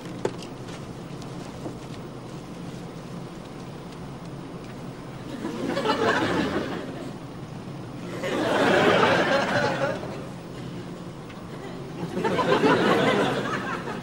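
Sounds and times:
low aircraft cabin hum: 0.0s - 14.0s
studio audience laughing: 5.2s - 7.2s, 8.0s - 10.8s, 11.4s - 14.0s.

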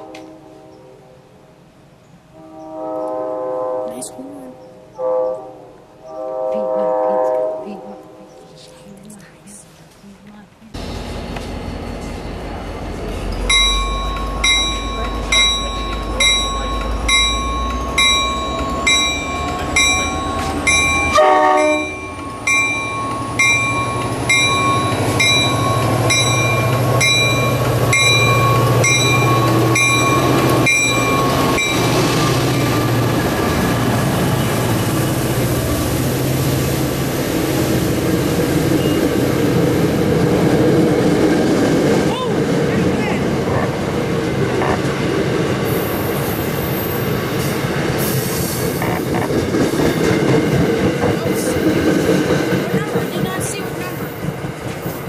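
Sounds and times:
locomotive horn: 0.0s - 1.3s, 2.3s - 8.3s, 19.8s - 22.2s
locomotive engine drone: 10.6s - 55.0s
locomotive bell ringing: 10.8s - 33.4s.

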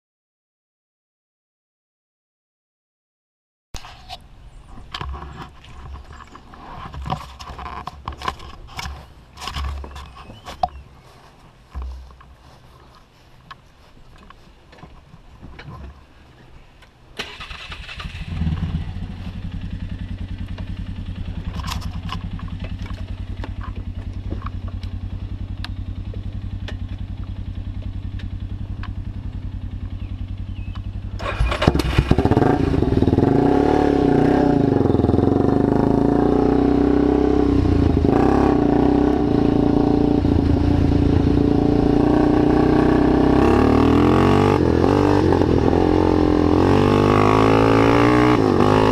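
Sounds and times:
atv engine running and revving: 18.0s - 48.9s.

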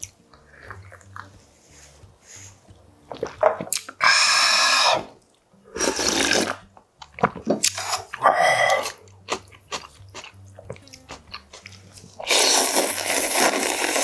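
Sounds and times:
mouth and chewing noises: 0.0s - 1.4s, 2.0s - 14.0s
slurping broth: 2.4s - 6.6s, 7.2s - 9.0s, 12.1s - 14.0s.

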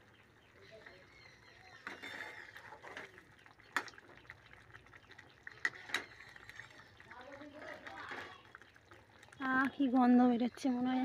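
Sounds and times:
curry bubbling: 0.0s - 11.0s
metal spatula scraping pan: 1.8s - 3.0s.

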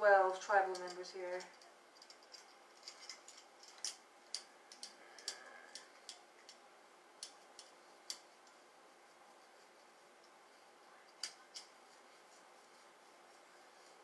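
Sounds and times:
hands massaging scalp: 0.1s - 14.0s
metal bangles clicking: 0.7s - 6.6s.

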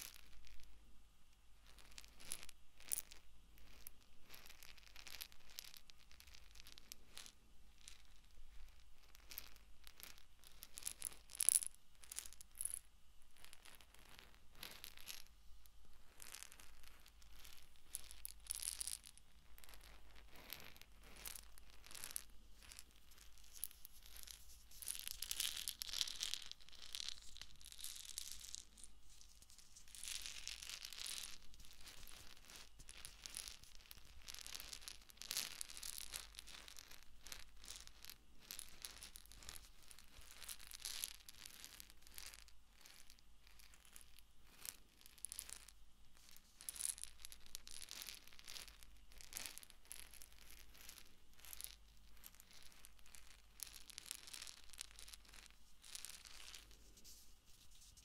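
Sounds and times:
eggs rubbing on microphone: 19.5s - 25.3s, 31.2s - 34.1s, 55.0s - 58.0s.

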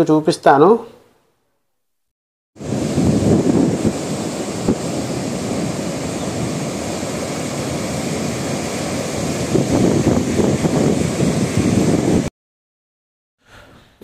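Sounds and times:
sea waves breaking on beach: 2.6s - 12.3s
wind buffeting microphone: 2.6s - 12.3s.

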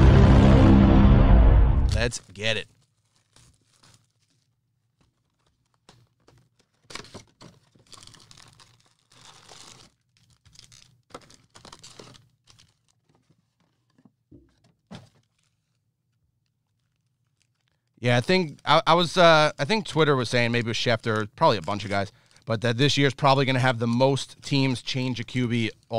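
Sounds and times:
cellophane wrapping tearing and crinkling: 2.6s - 14.0s, 15.1s - 15.8s, 16.6s - 18.6s, 19.8s - 23.4s.

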